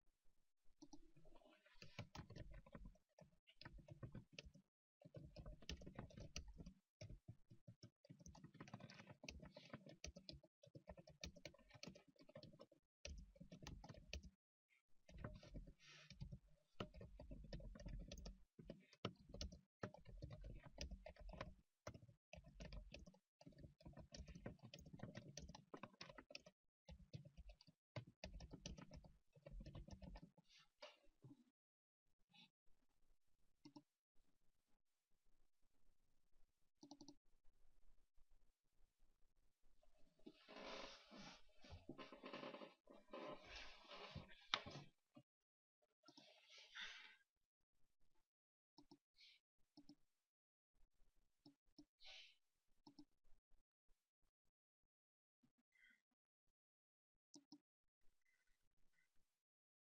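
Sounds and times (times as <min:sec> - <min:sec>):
typing on computer keyboard: 0:15.2 - 0:30.3.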